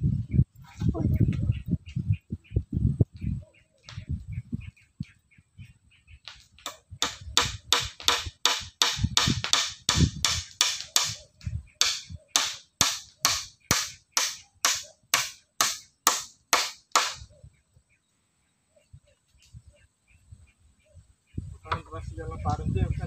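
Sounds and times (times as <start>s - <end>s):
sharp tool blows: 6.7s - 11.2s, 11.8s - 17.2s.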